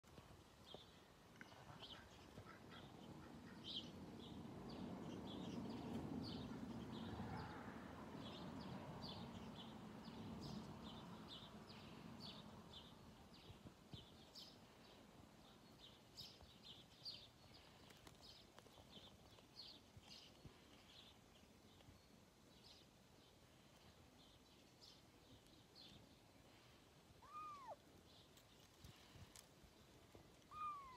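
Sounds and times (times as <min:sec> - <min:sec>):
small bird chirping: 0:27.2 - 0:29.4, 0:30.4 - 0:30.9.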